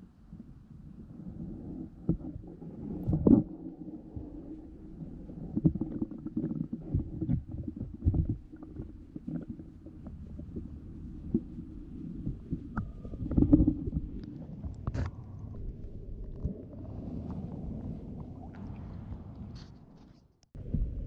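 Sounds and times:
muffled underwater rumble: 0.0 - 21.0.

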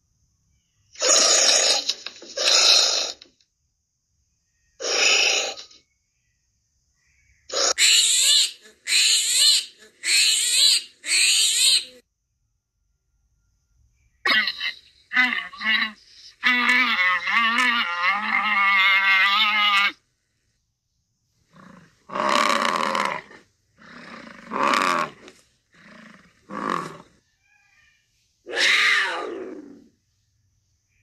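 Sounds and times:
short squealing animal calls: 1.0 - 3.2, 4.8 - 5.8, 7.5 - 12.0, 21.5 - 29.9.

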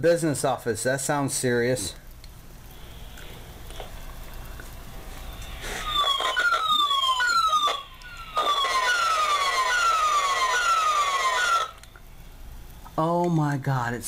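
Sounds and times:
repeating falling chirp tone: 5.1 - 11.8.

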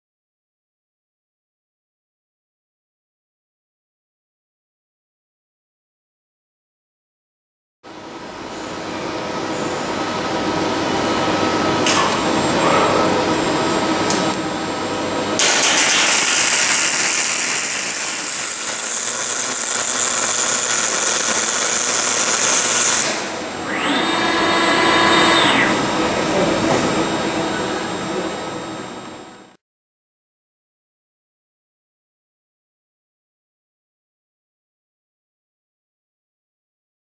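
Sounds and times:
steady machinery: 7.9 - 29.6
motor whine: 8.0 - 29.6
welding arc hissing and crackling: 15.4 - 23.4.

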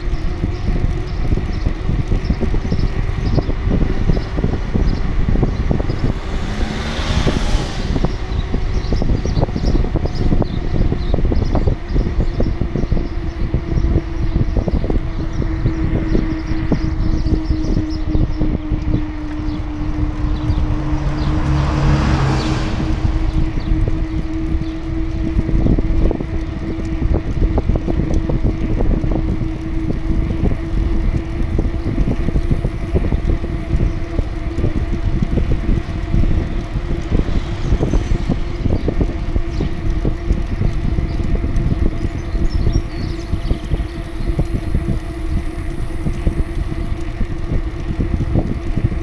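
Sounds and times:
wind buffeting the microphone: 0.0 - 49.0.

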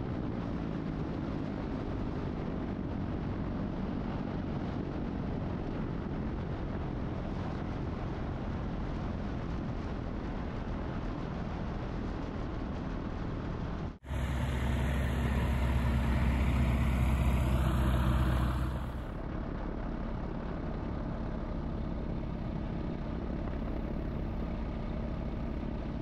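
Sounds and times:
aircraft engine humming: 14.0 - 19.2.

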